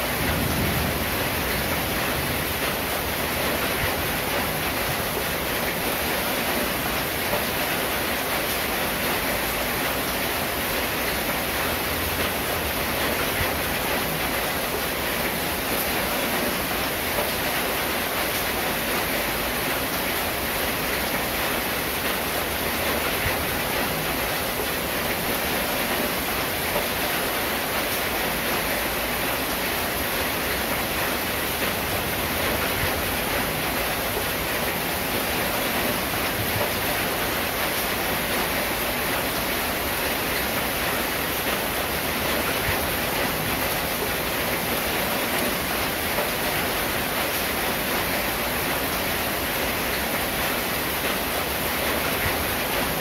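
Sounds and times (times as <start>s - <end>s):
rain on a metal roof: 0.0s - 53.0s.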